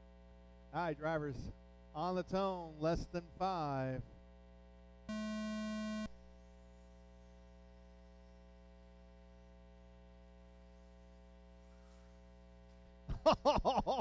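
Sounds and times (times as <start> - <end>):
buzzy electronic beep: 5.1 - 6.1
electrical hum: 5.1 - 13.2.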